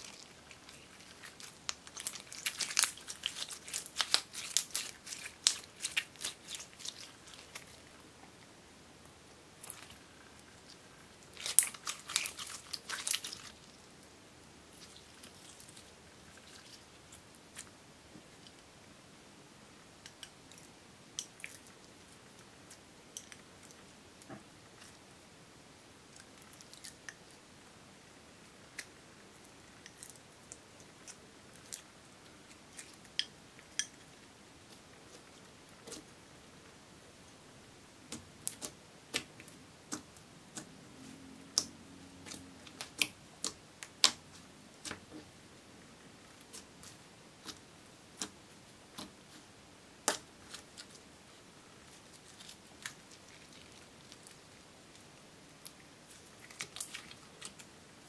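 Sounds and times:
sticky crackles and pops: 0:00.0 - 0:07.8.

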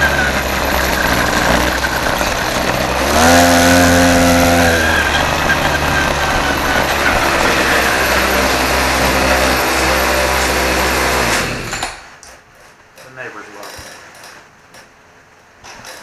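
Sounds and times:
small gasoline engine running: 0:00.0 - 0:12.1.

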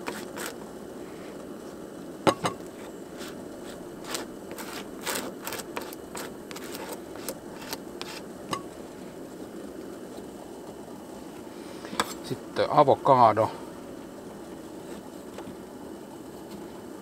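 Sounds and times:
knife scraping: 0:00.0 - 0:00.6, 0:02.7 - 0:08.3.

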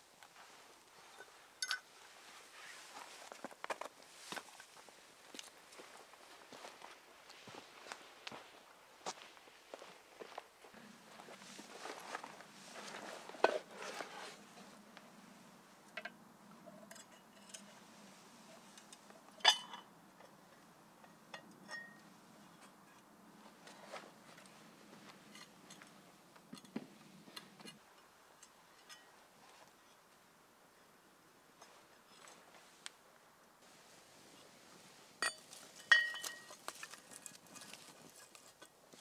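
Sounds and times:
metal clinks and knocks: 0:01.1 - 0:01.9, 0:35.2 - 0:38.7.

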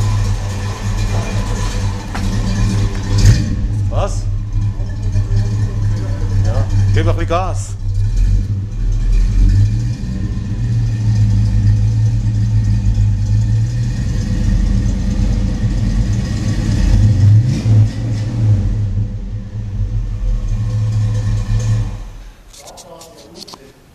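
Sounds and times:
car engine idling: 0:00.0 - 0:22.5.

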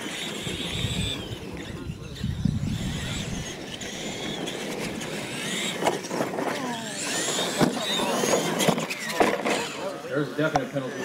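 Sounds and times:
electric motor and gear whine: 0:00.0 - 0:11.0
toy trucks landing knocks: 0:03.7 - 0:09.8.

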